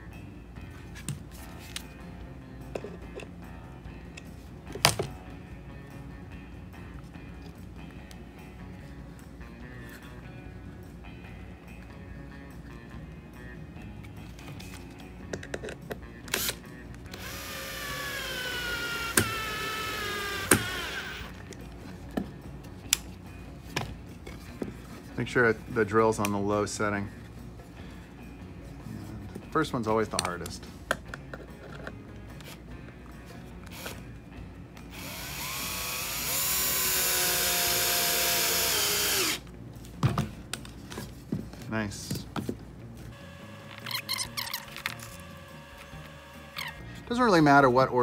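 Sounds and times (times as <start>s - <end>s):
cordless drill motor whine: 16.3s - 21.4s, 34.9s - 39.4s, 43.1s - 46.9s.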